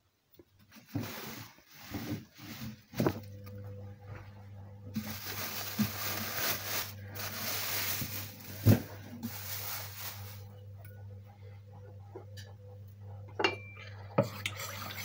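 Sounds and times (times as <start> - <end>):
low steady hum: 0.0 - 15.0
towel and plastic bag rustling: 0.7 - 3.3, 4.9 - 10.6.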